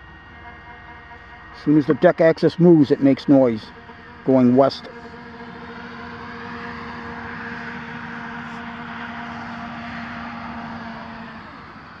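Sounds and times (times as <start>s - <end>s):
motors whining: 0.0s - 12.0s.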